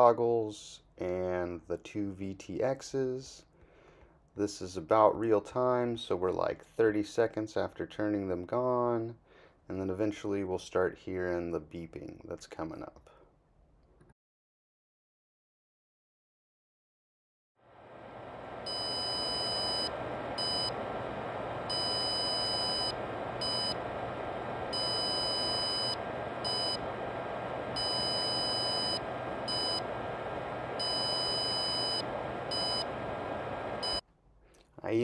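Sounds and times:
steady hum: 17.6 - 34.0
long and short beeps: 18.7 - 20.7, 21.7 - 23.8, 24.7 - 26.8, 27.8 - 29.8, 30.8 - 32.9.

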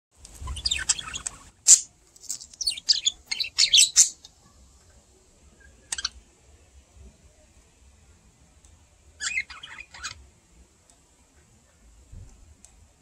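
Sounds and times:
budgerigars chirping: 0.4 - 1.8, 2.6 - 4.2, 5.9 - 6.2, 9.2 - 10.2.

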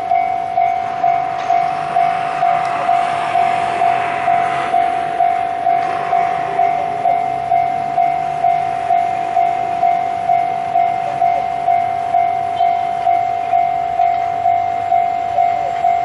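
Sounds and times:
level crossing bell ringing: 0.0 - 2.7, 4.4 - 16.0
diesel locomotive running: 0.0 - 16.0.

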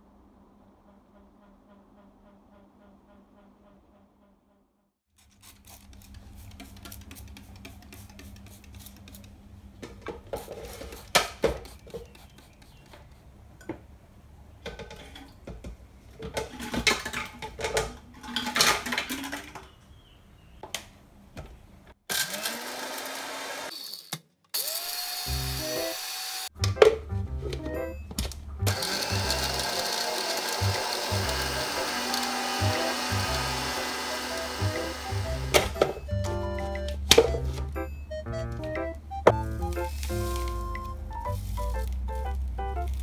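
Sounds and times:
blender grinding eggshells: 22.1 - 26.5, 28.7 - 36.0.

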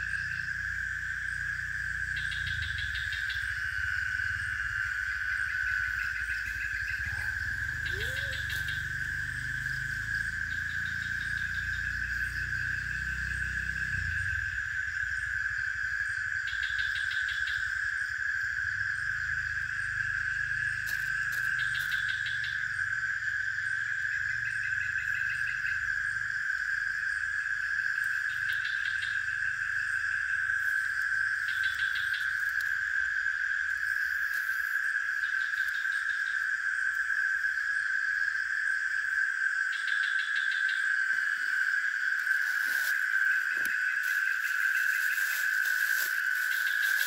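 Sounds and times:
insect chorus drone: 0.0 - 47.0
pulsing insect trill: 0.0 - 47.0.

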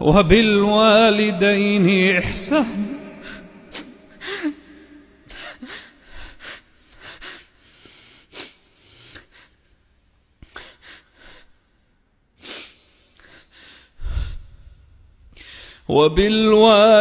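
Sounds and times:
man gasping: 3.1 - 9.6, 12.4 - 15.9
man sobbing and sniffling: 3.2 - 9.6.

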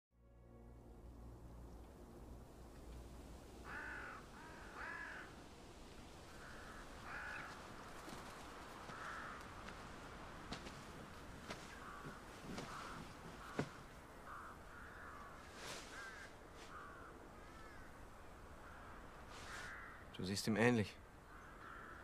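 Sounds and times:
faint outdoor hush: 0.2 - 22.0
crow cawing: 3.6 - 5.4, 6.3 - 7.9, 8.6 - 20.1, 21.2 - 22.0.

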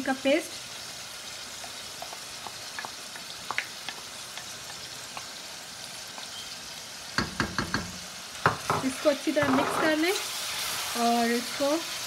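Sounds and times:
chicken sizzling in hot oil: 0.0 - 12.0
wooden spoon knocking on pot: 7.2 - 9.9.

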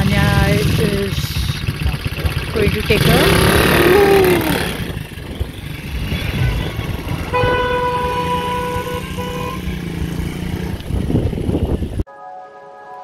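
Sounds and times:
small engine running: 0.0 - 12.0
vehicle horn: 5.9 - 10.8.

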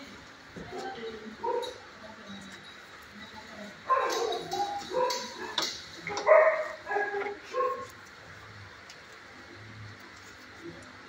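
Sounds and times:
dog yipping and barking: 3.9 - 7.9.

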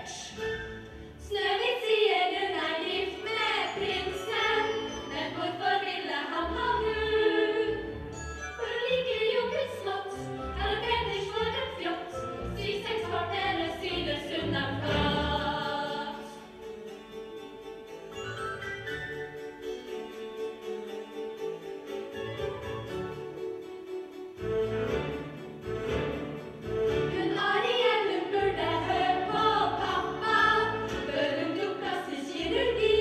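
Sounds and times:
musical accompaniment: 0.0 - 33.0
women singing together: 1.3 - 8.0, 9.1 - 16.4, 27.2 - 33.0.

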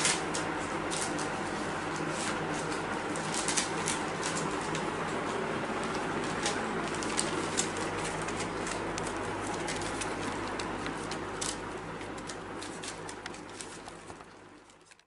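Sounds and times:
puppies chewing and crunching kibble: 0.0 - 15.0.

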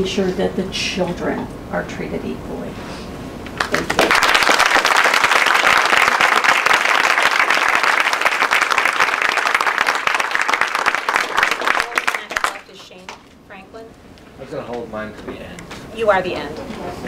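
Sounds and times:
audience applauding: 3.6 - 12.9.

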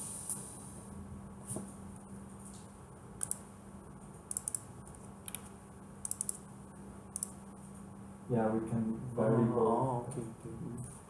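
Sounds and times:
faint steady hum: 0.0 - 11.0
computer clicks: 3.2 - 3.5, 4.2 - 6.5, 7.1 - 7.4.

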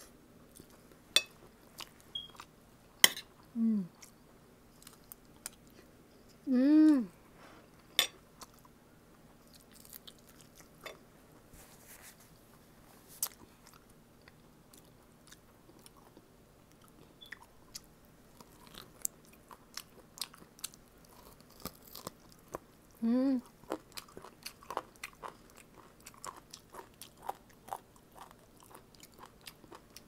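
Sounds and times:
person chewing with wet clicks: 0.5 - 2.5, 3.9 - 5.9, 8.4 - 10.9, 13.2 - 30.0.

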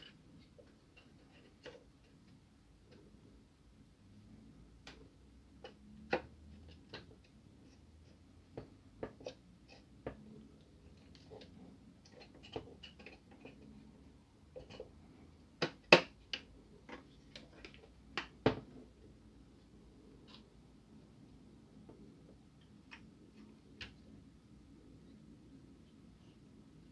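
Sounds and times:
plastic parts clicking and knocking: 0.0 - 3.2, 4.8 - 18.9.

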